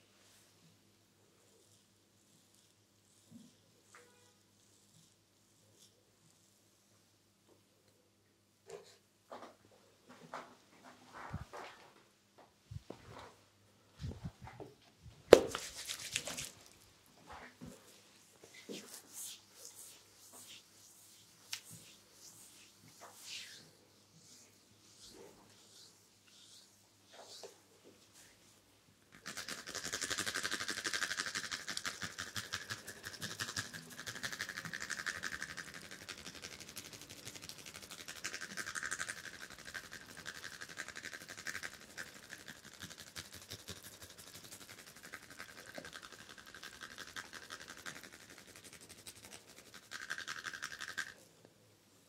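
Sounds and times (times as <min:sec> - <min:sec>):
fingertips rubbing skin and hair: 0:15.4 - 0:16.8, 0:18.4 - 0:27.6.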